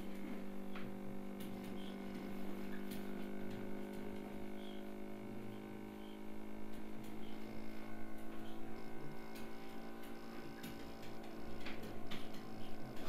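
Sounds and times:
electrical hum: 0.0 - 13.0
faint irregular clicks: 8.1 - 13.0.

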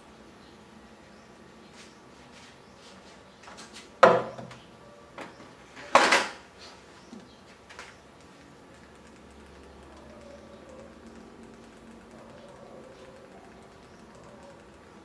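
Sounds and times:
light clicks: 7.1 - 15.0.

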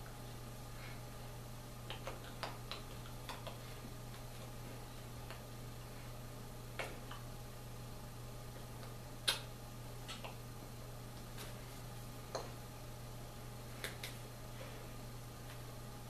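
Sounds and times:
hands clicking and tapping: 1.9 - 3.6.

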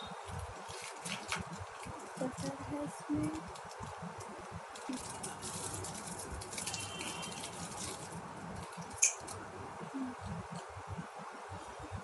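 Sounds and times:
plastic packaging crinkling: 0.2 - 9.4.

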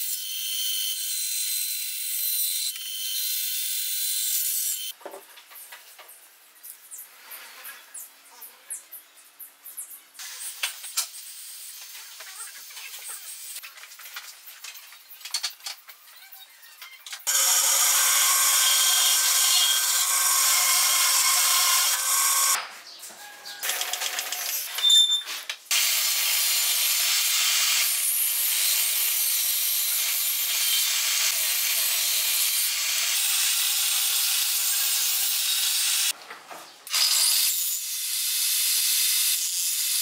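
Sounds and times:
table saw whine: 17.3 - 22.6.

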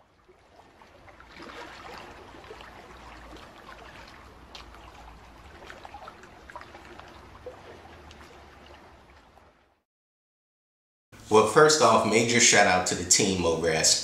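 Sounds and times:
liquid trickling and dripping: 0.0 - 9.8.

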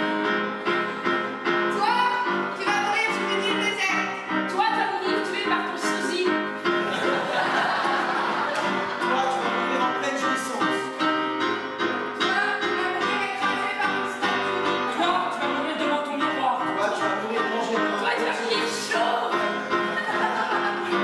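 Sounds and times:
electric keyboard playing: 0.0 - 21.0
voices singing together: 17.4 - 21.0.

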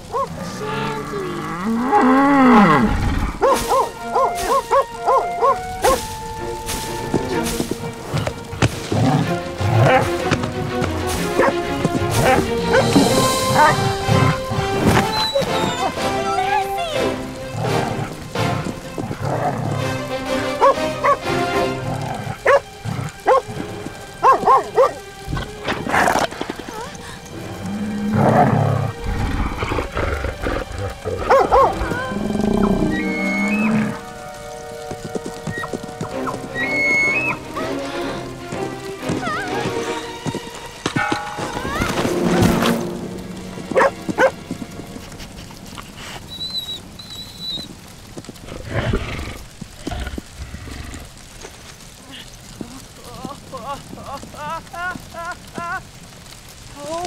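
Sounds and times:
background music: 0.0 - 52.0
dog barking: 3.4 - 6.0, 11.3 - 11.6, 12.2 - 13.8, 20.6 - 21.2, 22.4 - 22.7, 23.3 - 23.5, 24.2 - 25.0, 31.3 - 31.8, 43.7 - 44.4
high whistle-like notes: 15.0 - 15.9.

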